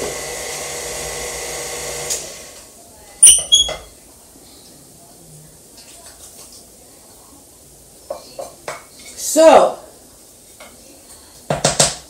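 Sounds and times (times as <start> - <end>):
electric stand mixer running: 0.0 - 2.6.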